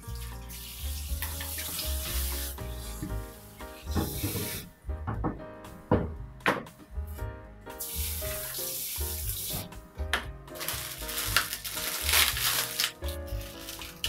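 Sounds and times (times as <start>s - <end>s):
music with steady beat: 0.0s - 13.6s
steady hiss: 7.8s - 9.7s.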